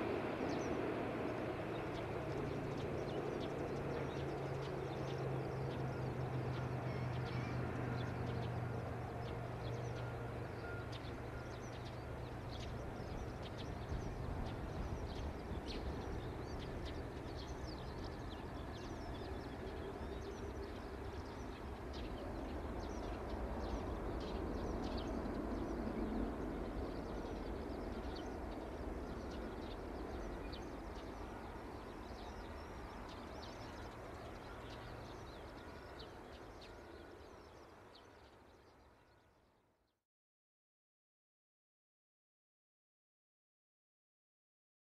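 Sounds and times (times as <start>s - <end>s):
jet engine rumble: 0.0s - 37.2s.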